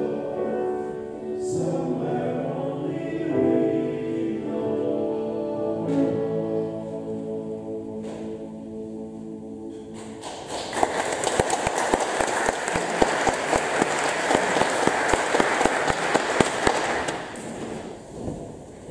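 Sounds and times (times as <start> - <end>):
congregation applauding: 10.0 - 17.9.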